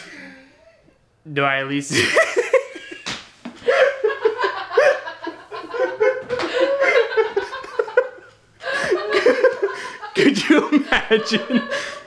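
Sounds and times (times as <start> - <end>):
young man laughing hard: 1.9 - 3.0, 3.6 - 12.0
sharp slap: 3.0 - 3.3
person laughing along: 3.6 - 12.0.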